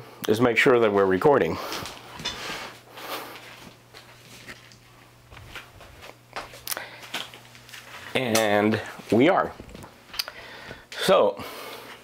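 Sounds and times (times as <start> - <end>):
steady low hum: 0.0 - 12.0
footsteps: 0.9 - 10.8
clothing rustling: 1.7 - 8.2.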